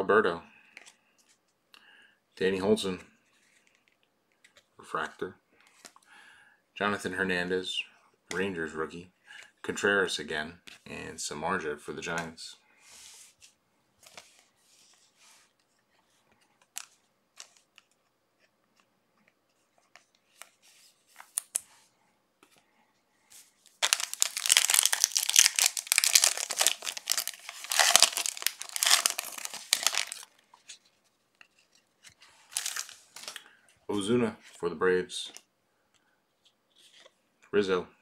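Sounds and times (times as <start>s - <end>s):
wrapper tearing and crinkling: 23.7s - 30.3s, 32.5s - 33.4s.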